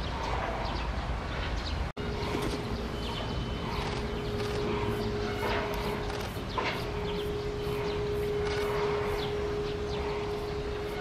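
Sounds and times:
steady hum: 0:02.0 - 0:11.0.

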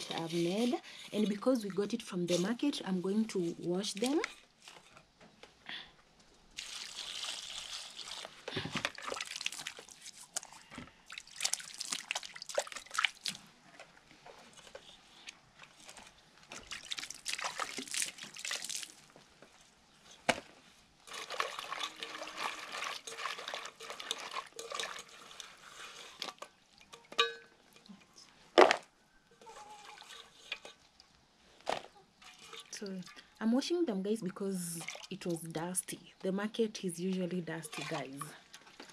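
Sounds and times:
water splashing and sloshing: 0:06.5 - 0:19.3, 0:21.0 - 0:27.9, 0:29.5 - 0:33.6, 0:34.5 - 0:35.7, 0:37.4 - 0:38.9
water pouring into basin: 0:06.6 - 0:10.5, 0:11.1 - 0:13.4, 0:16.6 - 0:19.1, 0:21.1 - 0:26.9.

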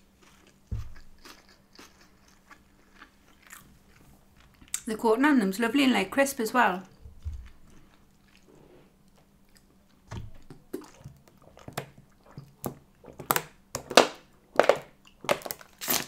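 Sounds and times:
quiet chewing: 0:00.1 - 0:04.9, 0:06.8 - 0:13.2.

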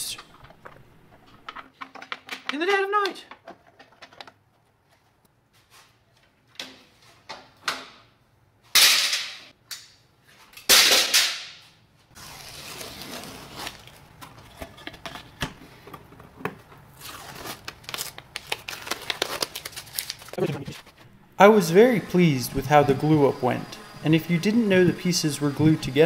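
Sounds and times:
tape tearing off roll: 0:12.2 - 0:14.4, 0:16.9 - 0:20.9
tape crackling: 0:12.2 - 0:21.1.

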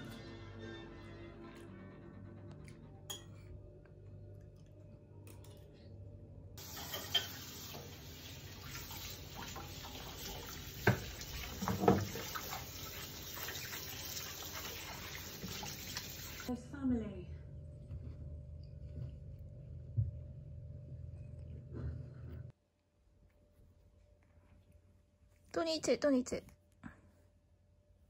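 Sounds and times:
faint background music: 0:00.0 - 0:06.6, 0:16.5 - 0:22.6
dishes clinking: 0:03.1 - 0:03.5, 0:06.6 - 0:08.0, 0:10.8 - 0:12.4
tap running into sink: 0:06.6 - 0:16.5.

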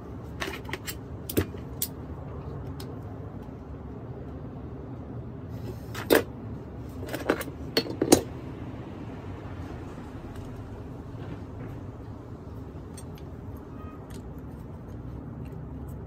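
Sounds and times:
metallic clicks of pliers and parts: 0:00.4 - 0:02.0
steady low rumble: 0:06.3 - 0:16.0.

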